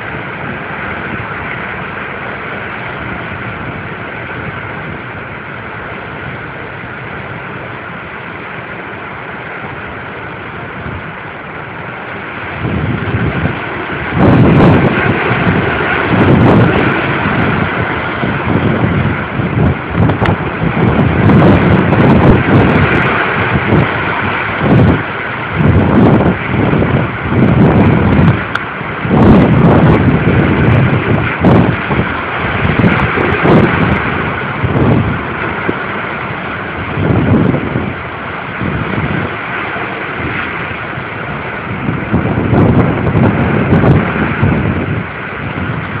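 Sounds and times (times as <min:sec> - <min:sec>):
wind buffeting microphone: 0:00.0 - 0:46.0
wind gusting through trees: 0:00.0 - 0:46.0.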